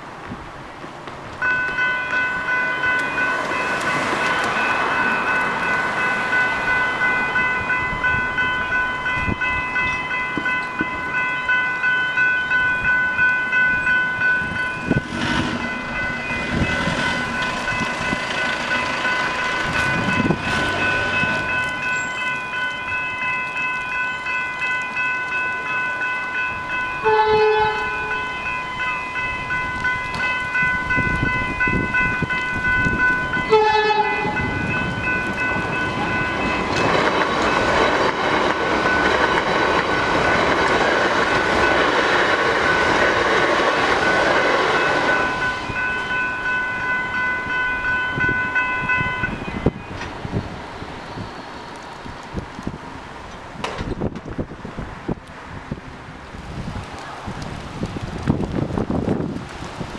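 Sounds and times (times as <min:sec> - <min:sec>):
level crossing bells ringing: 0:01.4 - 0:50.0
train horn blasts: 0:27.0 - 0:28.4, 0:33.5 - 0:34.7.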